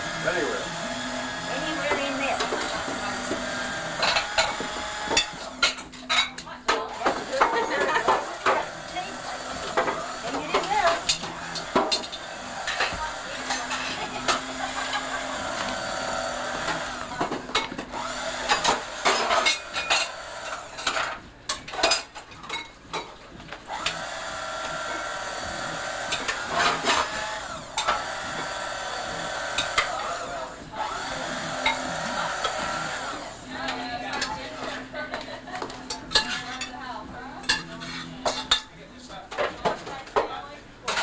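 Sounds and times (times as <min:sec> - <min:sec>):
electric carving knife whining: 0:00.0 - 0:05.6, 0:07.0 - 0:20.8, 0:23.7 - 0:33.6.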